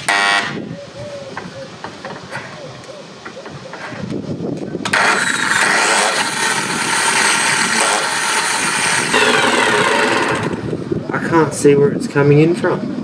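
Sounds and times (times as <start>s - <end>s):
angle grinder whine: 4.9s - 10.8s.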